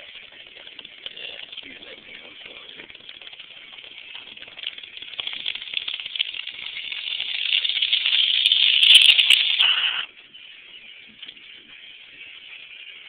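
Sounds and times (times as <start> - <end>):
bong water bubbling: 0.0 - 10.1.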